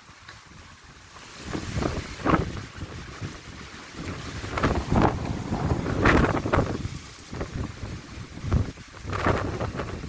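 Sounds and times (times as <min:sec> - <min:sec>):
wind buffeting microphone: 0:01.4 - 0:10.0.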